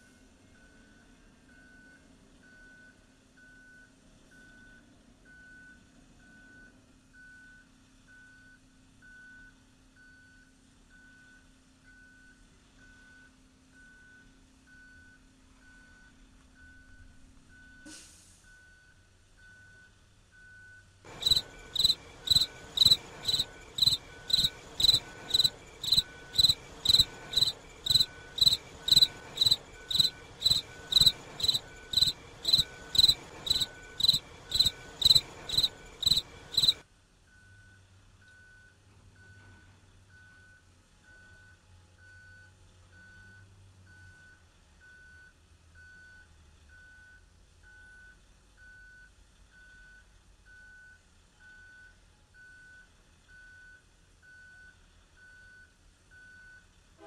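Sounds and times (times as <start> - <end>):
vehicle backup alarm beeping: 0.5 - 56.7
railroad warning bell ringing: 21.1 - 36.8.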